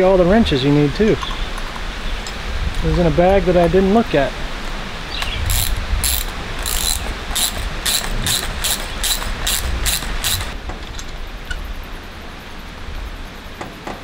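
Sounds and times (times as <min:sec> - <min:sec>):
ratchet wrench ratcheting: 0:05.4 - 0:10.6.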